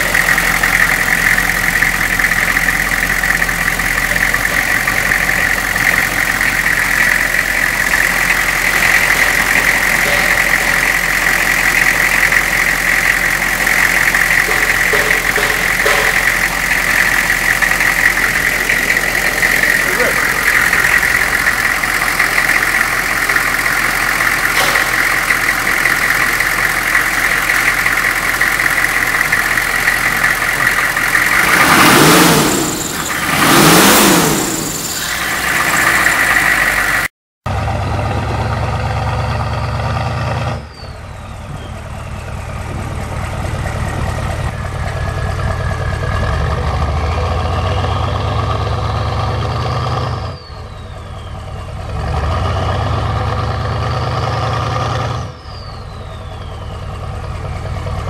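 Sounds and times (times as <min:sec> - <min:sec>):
deep steady drone: 0:00.0 - 0:34.7
diesel engine idling and revving: 0:00.0 - 0:58.0.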